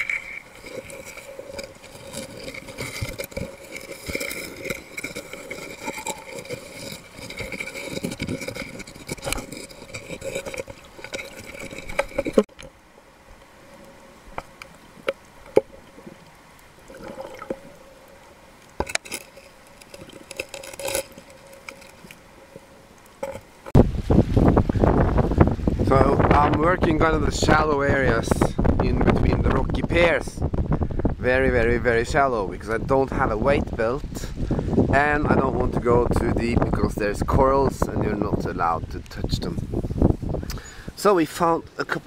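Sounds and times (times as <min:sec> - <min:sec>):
underwater water gurgling: 0:00.0 - 0:23.8.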